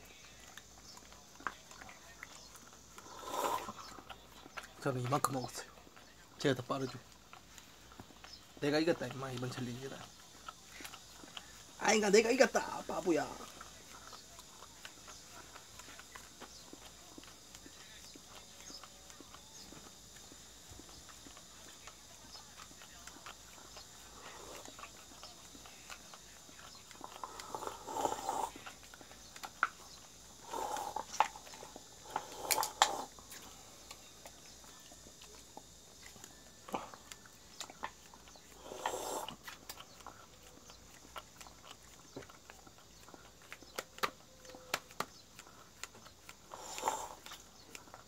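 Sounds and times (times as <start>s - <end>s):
dog licking wetly: 0.0s - 48.0s.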